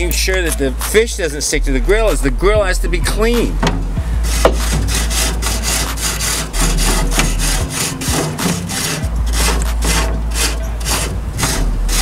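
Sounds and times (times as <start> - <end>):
brush scrubbing metal grill grate: 4.3 - 12.0.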